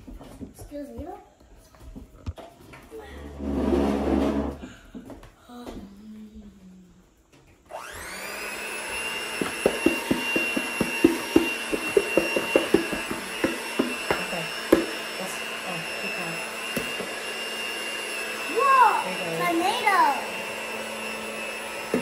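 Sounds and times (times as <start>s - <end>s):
electric hand mixer whining: 7.7s - 22.0s.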